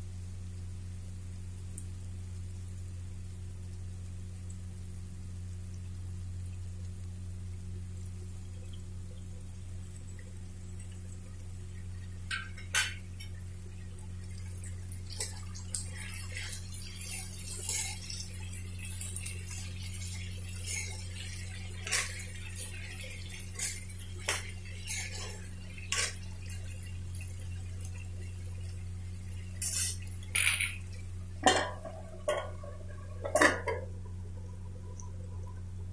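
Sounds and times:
steady low hum: 0.0s - 35.9s
metal spoon scraping a pan: 16.0s - 26.6s, 29.6s - 33.8s
metal plate clanking on a pan: 31.4s - 32.6s, 33.2s - 33.8s.

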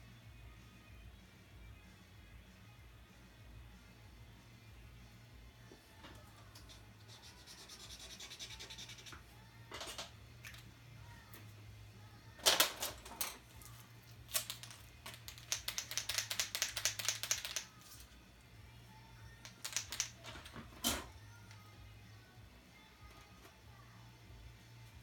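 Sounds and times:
pens scratching on paper: 6.6s - 9.2s.

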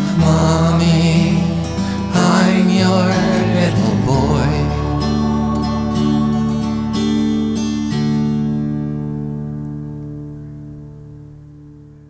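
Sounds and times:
guitar chord ringing out: 0.0s - 12.0s.

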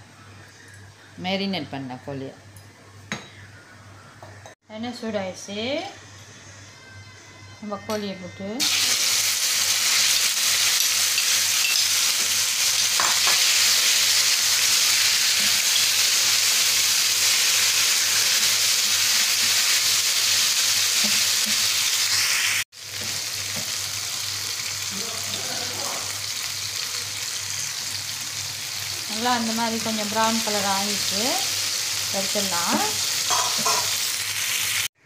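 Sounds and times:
chicken sizzling in frying pan: 8.6s - 34.9s.

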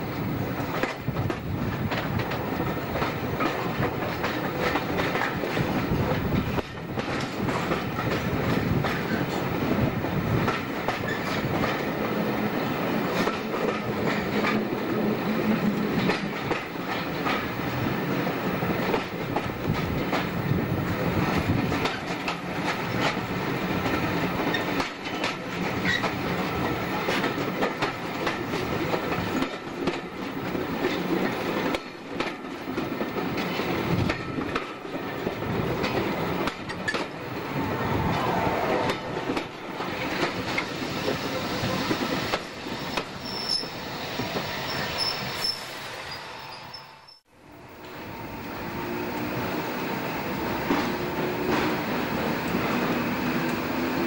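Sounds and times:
train wheels clattering over joints: 0.6s - 37.4s
wheel squeal: 42.8s - 47.2s.

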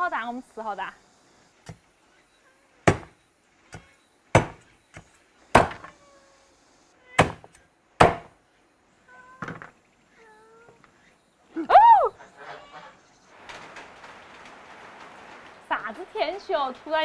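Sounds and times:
cleaver chopping on board: 2.9s - 3.1s, 4.4s - 5.9s, 7.2s - 8.3s.

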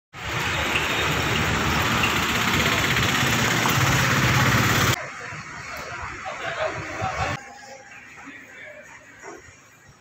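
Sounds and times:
street noise: 0.1s - 10.0s
engine idling: 0.2s - 5.0s.

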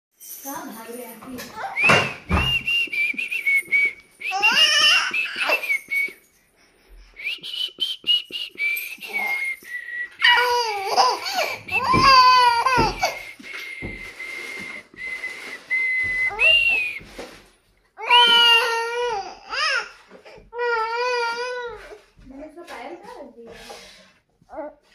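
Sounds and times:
baby squealing: 4.2s - 5.9s, 10.2s - 13.4s, 18.0s - 20.0s
baby babbling: 4.3s - 5.6s, 10.2s - 13.2s, 18.0s - 22.0s.

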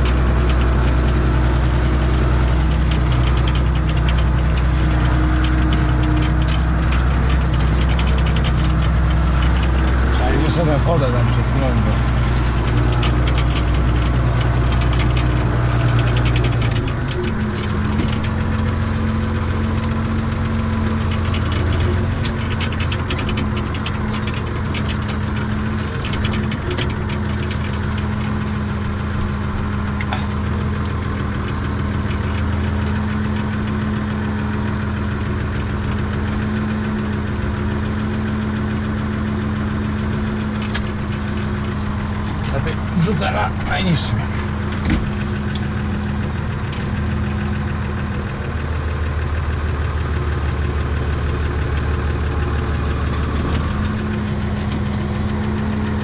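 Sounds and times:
cab rattling: 0.0s - 56.0s
tractor diesel engine running: 0.0s - 56.0s.

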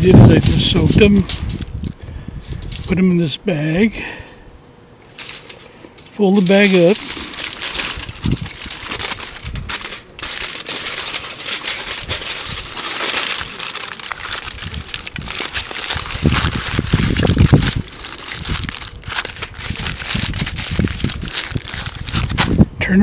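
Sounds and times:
aluminium foil crinkling: 0.0s - 2.9s, 5.0s - 22.7s.

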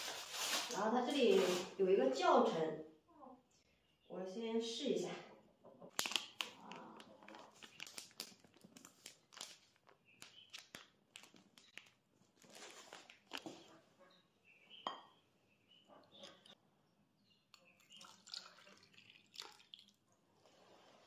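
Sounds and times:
plastic bag crinkling: 5.9s - 13.7s.

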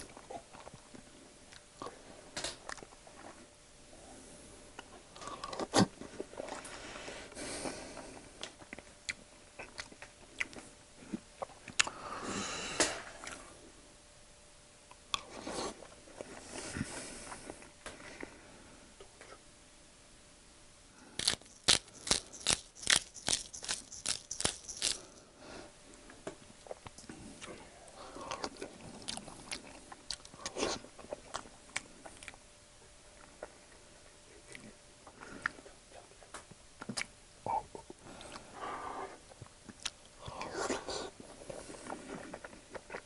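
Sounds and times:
pepper grinder crunching clicks: 21.2s - 25.0s
eating sounds: 26.6s - 32.4s.

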